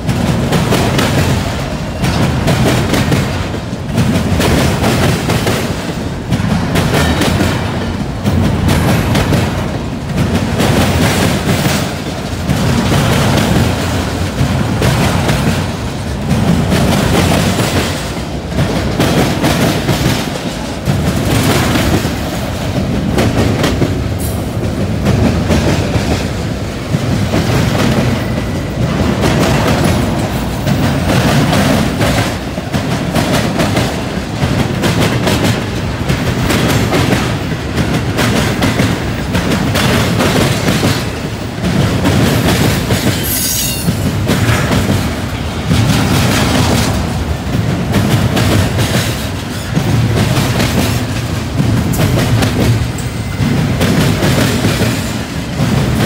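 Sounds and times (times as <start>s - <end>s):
train wheels clacking over crossing: 0.0s - 56.0s
high wheel squeal: 43.2s - 44.0s.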